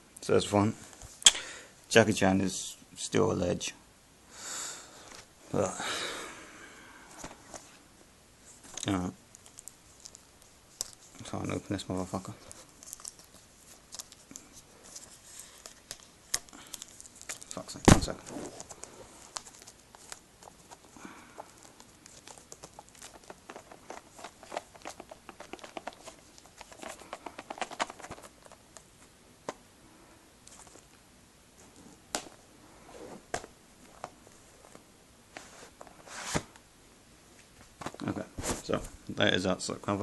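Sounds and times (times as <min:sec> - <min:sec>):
plastic packaging crinkling: 0:08.7 - 0:11.3, 0:12.4 - 0:28.6.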